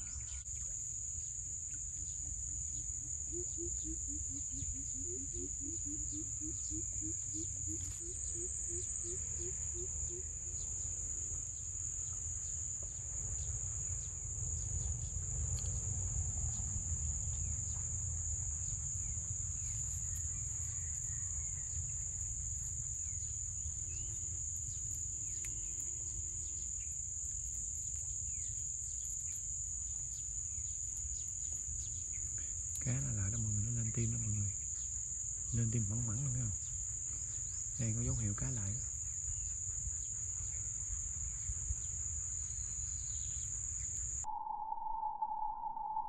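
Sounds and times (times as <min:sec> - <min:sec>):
insect chorus drone: 0:00.0 - 0:46.0
faint ticks: 0:24.8 - 0:26.7.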